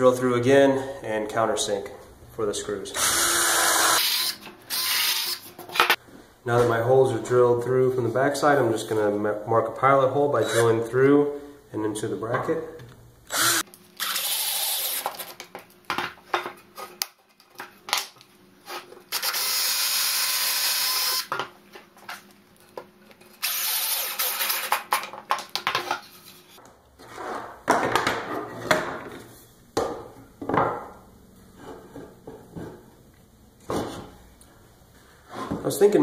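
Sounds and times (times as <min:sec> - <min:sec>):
cordless drill boring wood: 0:03.0 - 0:05.4, 0:13.3 - 0:15.0, 0:19.1 - 0:21.3, 0:23.4 - 0:24.3.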